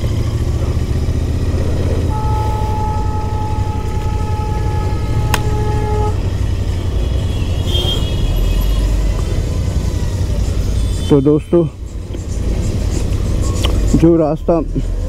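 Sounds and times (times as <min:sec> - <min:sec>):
motorcycle rumble in traffic: 0:00.0 - 0:15.0
two-tone vehicle horn: 0:01.9 - 0:09.0.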